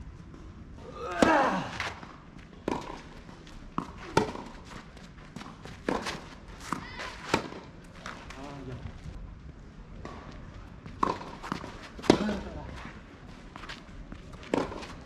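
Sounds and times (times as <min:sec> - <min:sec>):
racket hitting ball: 0:01.2 - 0:04.7, 0:05.3 - 0:07.8, 0:11.0 - 0:12.6, 0:14.4 - 0:15.0.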